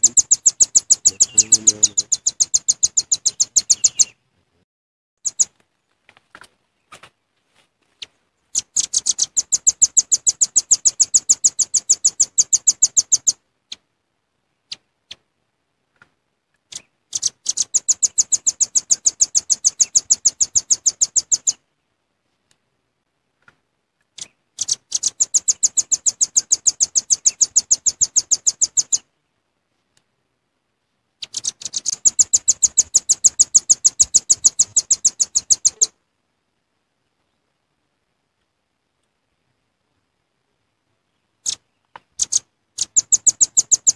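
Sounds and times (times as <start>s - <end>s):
bird calling in rapid high trills: 0.0s - 4.2s, 5.2s - 5.5s, 8.5s - 13.4s, 16.8s - 21.6s, 24.2s - 29.1s, 31.2s - 36.0s, 42.2s - 43.9s.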